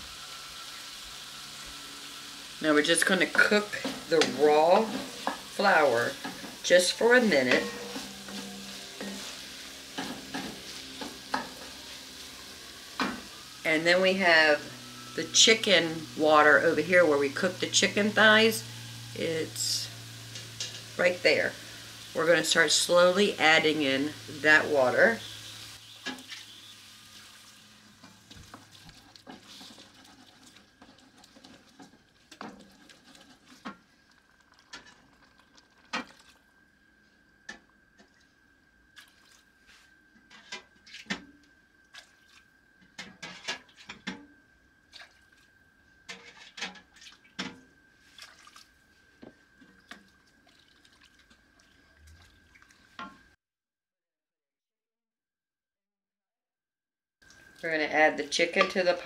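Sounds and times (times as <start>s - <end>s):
liquid splashing and dripping: 26.1s - 36.5s, 38.0s - 39.5s, 40.8s - 42.5s, 44.9s - 45.6s, 46.6s - 48.8s, 49.5s - 53.3s.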